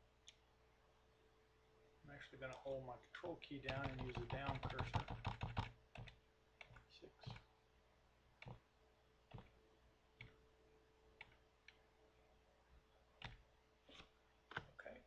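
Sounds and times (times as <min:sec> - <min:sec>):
faint steady hum: 0:00.0 - 0:15.0
keyboard key taps: 0:03.7 - 0:06.8.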